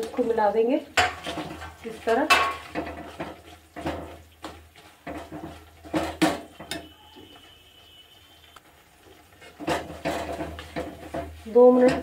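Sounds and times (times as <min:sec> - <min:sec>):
spoon scraping metal pan: 0:09.1 - 0:12.0.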